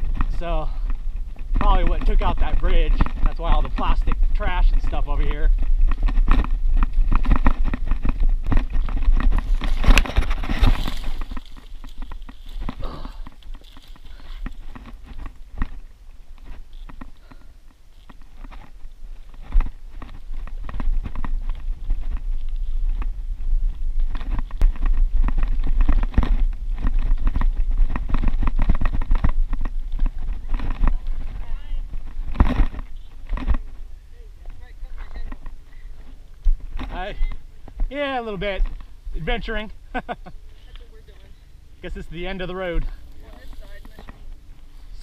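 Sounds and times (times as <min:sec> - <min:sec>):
wind buffeting microphone: 0:00.0 - 0:17.3, 0:18.7 - 0:40.5
tyres crunching on loose stone: 0:00.0 - 0:33.8
bike rattling over dirt trail: 0:00.0 - 0:41.2, 0:41.8 - 0:45.0
leaves and branches brushing: 0:00.0 - 0:45.0.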